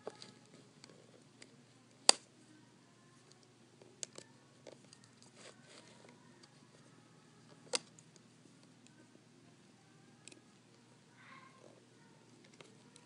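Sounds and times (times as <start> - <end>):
soft rustle: 4.6 - 7.0.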